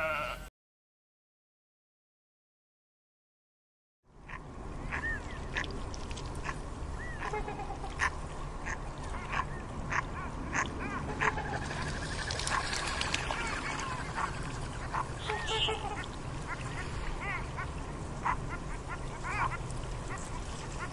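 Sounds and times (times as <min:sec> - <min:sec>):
penguins calling: 0:14.9 - 0:16.1.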